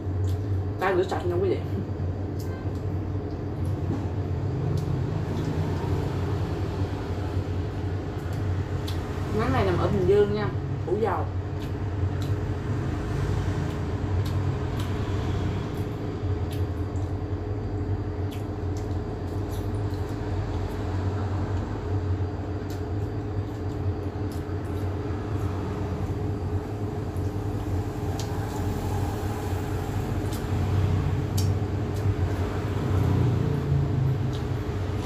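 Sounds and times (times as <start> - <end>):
low machine hum: 0.0 - 35.0.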